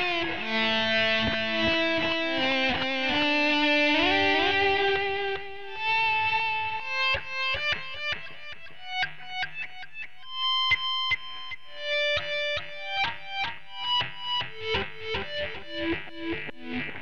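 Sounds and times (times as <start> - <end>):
electric guitar melody: 0.0 - 17.0.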